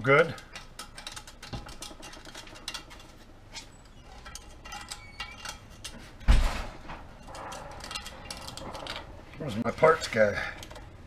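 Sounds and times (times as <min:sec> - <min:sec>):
screwdriver scraping metal: 0:00.4 - 0:06.2.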